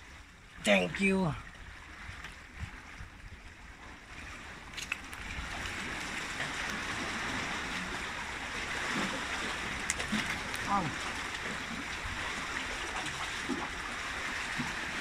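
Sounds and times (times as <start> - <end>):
sea water washing against rocks: 4.1 - 15.0.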